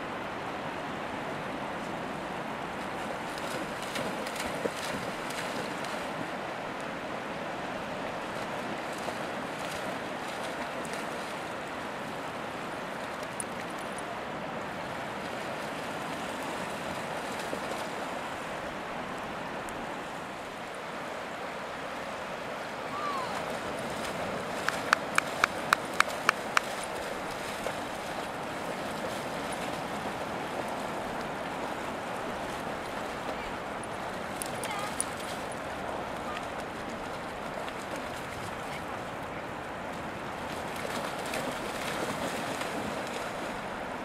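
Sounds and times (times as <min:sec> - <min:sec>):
wind: 0:00.0 - 0:44.0
dogs splashing in water: 0:23.2 - 0:33.4, 0:40.4 - 0:43.6
shallow sea water washing: 0:23.2 - 0:44.0.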